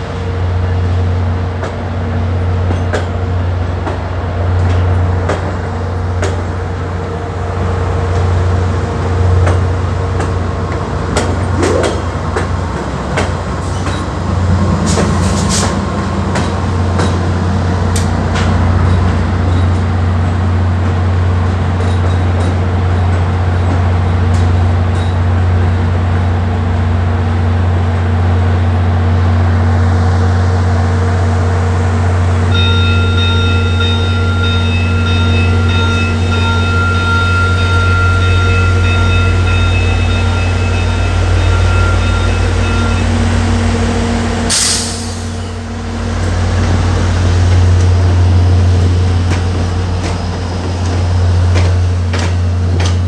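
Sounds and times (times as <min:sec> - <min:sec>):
diesel locomotive drone: 0:00.0 - 0:53.0
train wheels clicking over rails: 0:09.4 - 0:20.0, 0:46.2 - 0:53.0.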